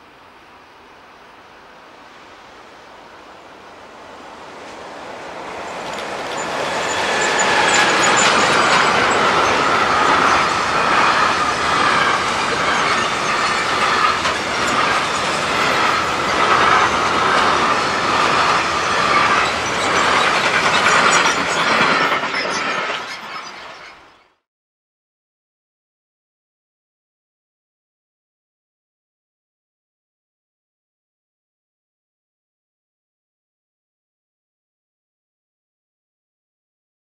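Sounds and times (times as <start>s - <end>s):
freight train wheels on rails: 2.0s - 24.4s
ringing note from train wheels: 5.6s - 24.1s.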